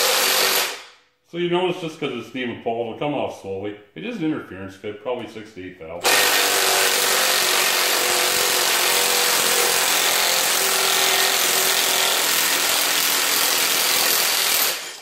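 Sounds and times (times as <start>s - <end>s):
power tool whining under load: 6.0s - 15.0s.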